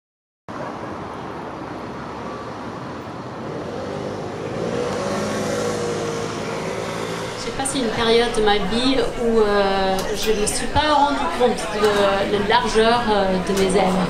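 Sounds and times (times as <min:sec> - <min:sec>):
city traffic: 0:00.5 - 0:14.0.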